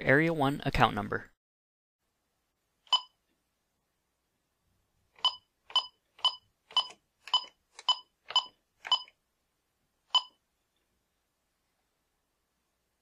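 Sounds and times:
keypad beeps: 0:02.9 - 0:03.2, 0:05.2 - 0:09.2, 0:10.1 - 0:10.4.

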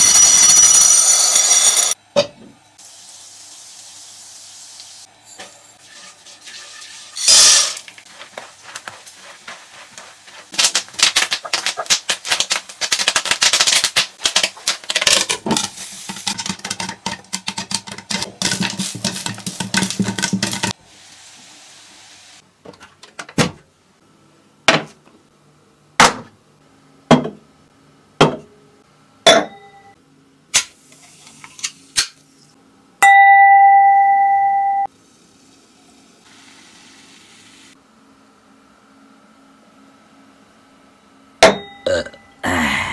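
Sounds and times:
spatula scraping in a wok: 0:05.2 - 0:10.6
crackly sizzling: 0:05.8 - 0:22.4.

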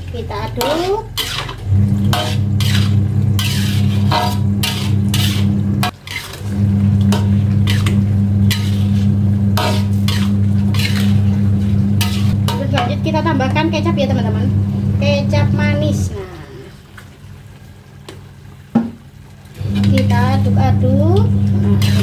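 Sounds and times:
steady low hum: 0:00.0 - 0:16.9
sauce simmering: 0:00.0 - 0:22.0
metal spatula scraping wok: 0:00.4 - 0:14.3, 0:19.7 - 0:20.2, 0:21.6 - 0:22.0.

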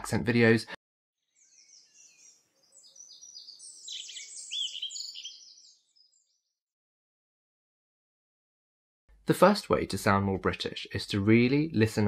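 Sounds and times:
birds chirping: 0:01.2 - 0:06.7.

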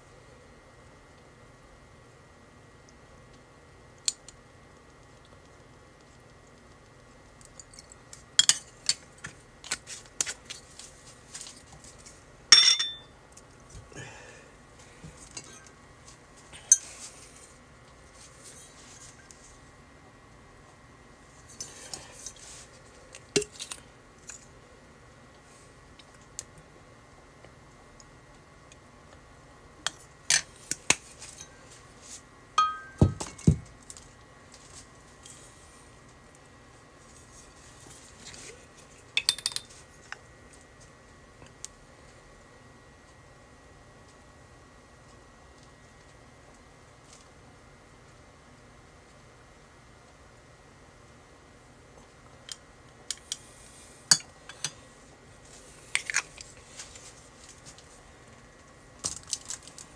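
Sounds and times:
ceramic dishes clinking: 0:12.5 - 0:13.1, 0:32.6 - 0:33.4
glass bottles set down: 0:12.6 - 0:13.1, 0:32.6 - 0:33.6.

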